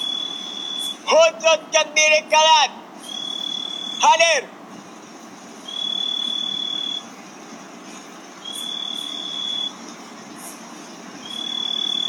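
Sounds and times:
insect trilling: 0.0 - 1.1, 3.0 - 4.1, 5.6 - 7.1, 8.4 - 9.8, 11.2 - 12.0
hum of other insects: 0.0 - 1.2, 2.9 - 4.2, 4.8 - 12.0.

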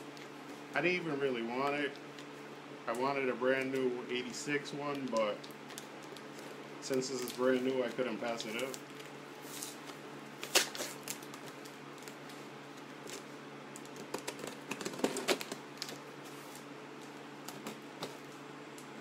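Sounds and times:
tape and cardboard crackling: 4.8 - 18.4.

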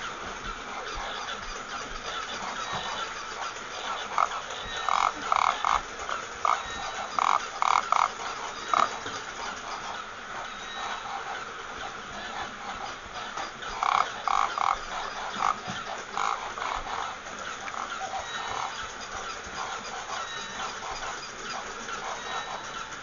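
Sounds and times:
steady hiss: 0.0 - 23.0
toy squawking: 13.2 - 22.9.

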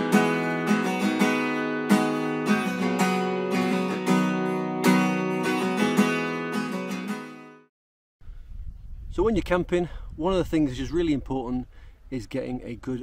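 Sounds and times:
acoustic guitar strumming chords: 0.0 - 7.7.

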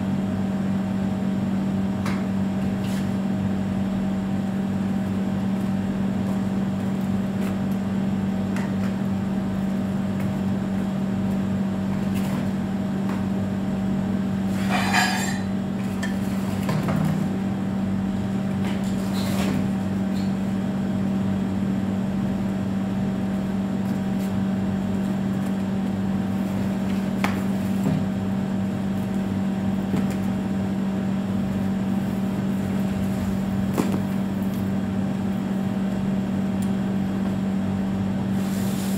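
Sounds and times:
low mechanical hum: 0.0 - 38.9.

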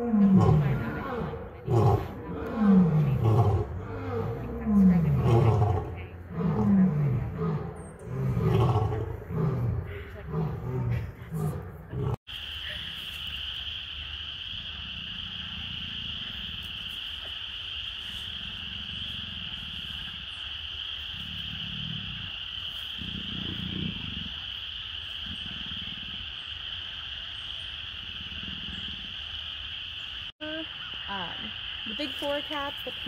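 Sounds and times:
low rumbling grunts: 0.0 - 12.2
tree frogs trilling: 12.1 - 33.0.

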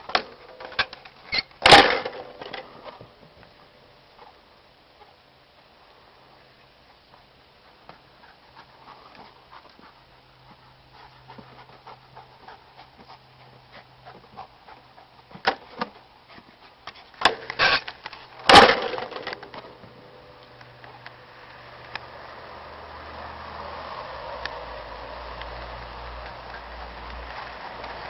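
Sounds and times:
dog panting: 6.9 - 17.2.

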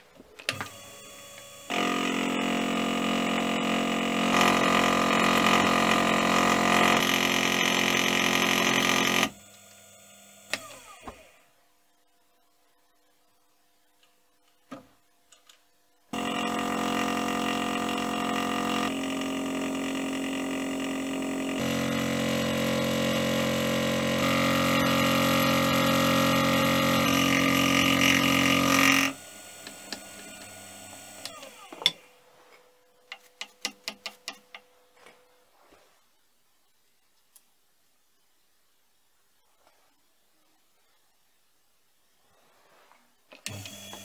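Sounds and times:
milling machine cutting metal: 0.6 - 9.4, 16.2 - 32.0.

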